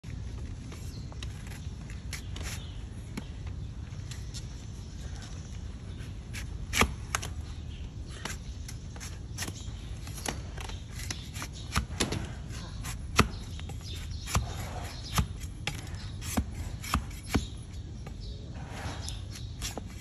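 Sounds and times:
blade crunching through hoof: 6.3s - 17.7s.

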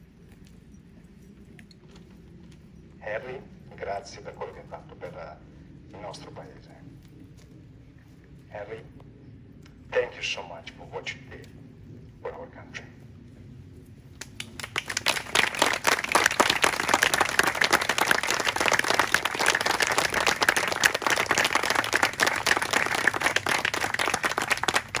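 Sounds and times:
crowd applauding: 14.2s - 25.0s.

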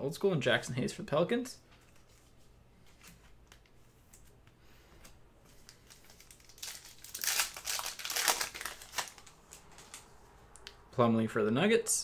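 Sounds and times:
foil wrapper tearing and crinkling: 5.7s - 10.1s.

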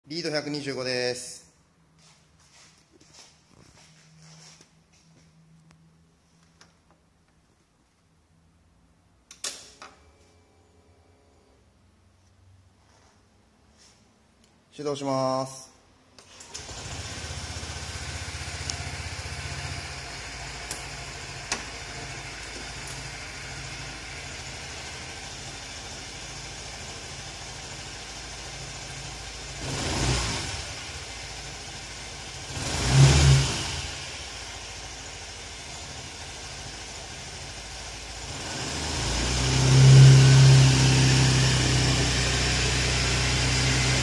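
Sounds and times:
scooter engine idling and revving: 16.4s - 44.0s.

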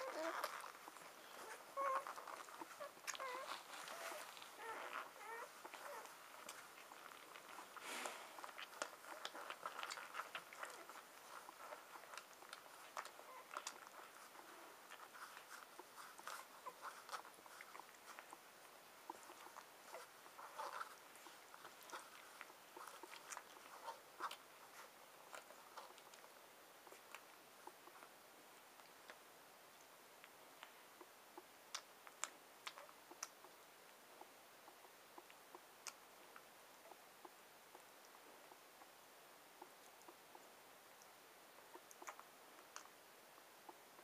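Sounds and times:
puppy squeaks: 0.0s - 0.8s, 1.4s - 6.5s
puppies suckling: 0.0s - 44.0s.

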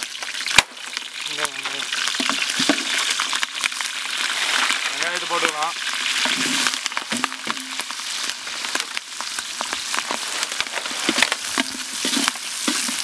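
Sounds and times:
spices sizzling in hot oil: 0.0s - 13.0s
onions dropped into oil: 6.2s - 8.0s
ladle stirring in pot: 10.6s - 13.0s.

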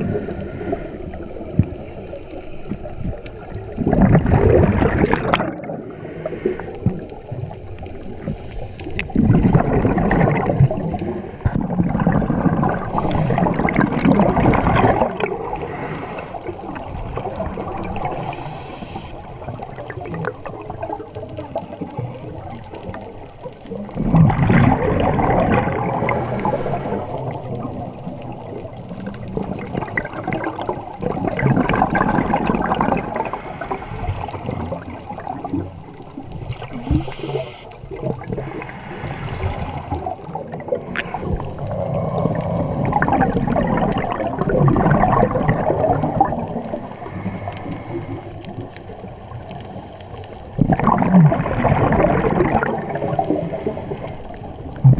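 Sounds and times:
regulator inhale hiss: 0.0s - 1.3s, 5.9s - 6.8s, 8.2s - 9.1s, 12.9s - 13.6s, 15.5s - 16.6s, 18.0s - 19.4s, 26.0s - 27.3s, 33.2s - 34.6s, 36.7s - 37.8s, 38.4s - 40.0s, 46.8s - 48.5s, 53.4s - 54.5s
exhaust bubbles underwater: 0.0s - 54.9s.

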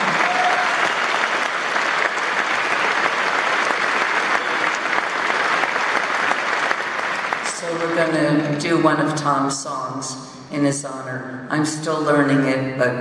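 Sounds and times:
audience applauding: 0.0s - 8.1s.

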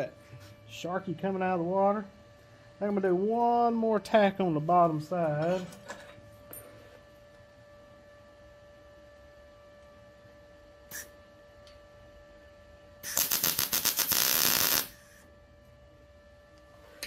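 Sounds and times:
welding arc crackling: 13.0s - 15.2s.

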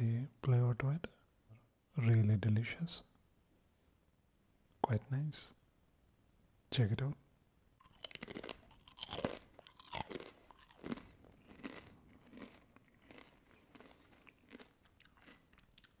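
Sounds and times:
potato chips being chewed: 7.8s - 16.0s.

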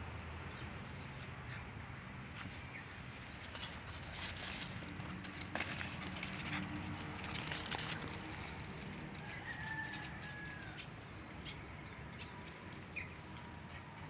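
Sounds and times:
distant rooster crowing: 9.0s - 11.1s.

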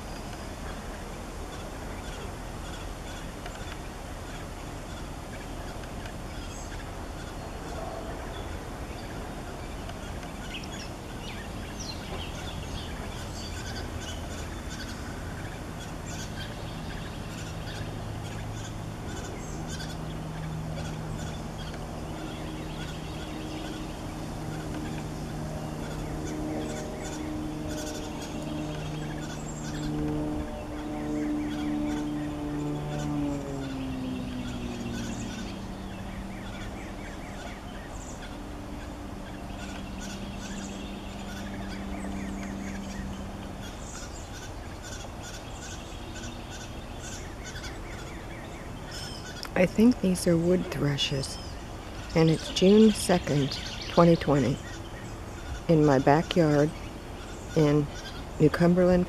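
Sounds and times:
fledglings begging calls: 0.0s - 59.0s
low steady drone: 0.0s - 59.0s.

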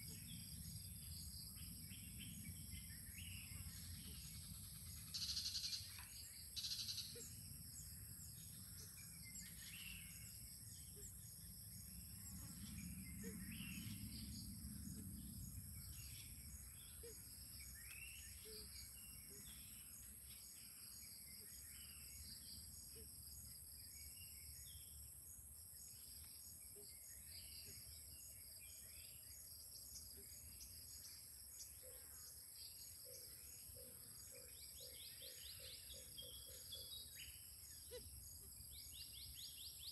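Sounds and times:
bird chirps: 0.0s - 15.0s
insect drone: 0.0s - 39.9s.

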